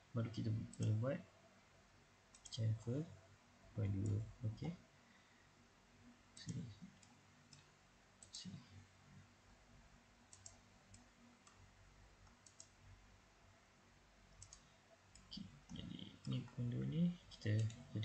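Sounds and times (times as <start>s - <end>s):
faint steady hum: 0.0s - 18.0s
computer mouse clicking: 2.3s - 2.6s, 10.3s - 11.6s, 12.2s - 12.8s, 14.3s - 16.6s, 17.4s - 18.0s.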